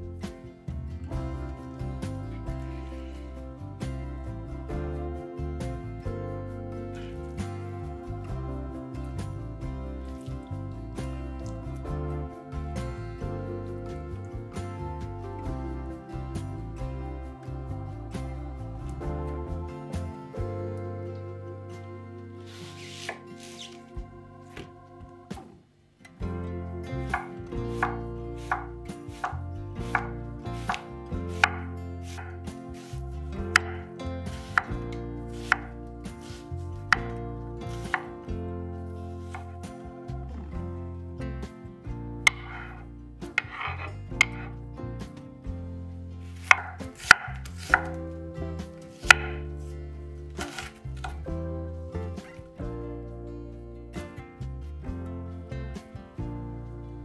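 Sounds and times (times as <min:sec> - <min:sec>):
knife slicing onion: 0:27.1 - 0:38.1, 0:39.2 - 0:39.8, 0:42.3 - 0:44.6, 0:46.2 - 0:48.1, 0:48.9 - 0:49.7, 0:50.4 - 0:51.2
knife knocking on wooden board: 0:42.3 - 0:42.8
onion crunching: 0:42.3 - 0:44.6, 0:46.2 - 0:48.0, 0:48.9 - 0:51.2.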